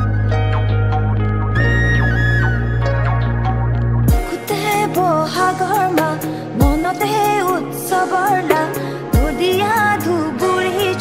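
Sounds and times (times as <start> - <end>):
deep sliding bass note: 0.0 - 4.3
instrument chords: 0.0 - 11.0
person singing over a beat: 4.1 - 11.0.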